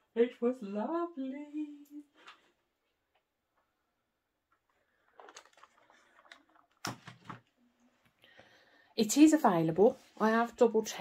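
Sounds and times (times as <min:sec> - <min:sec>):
plastic containers clattering together: 0:05.0 - 0:07.6.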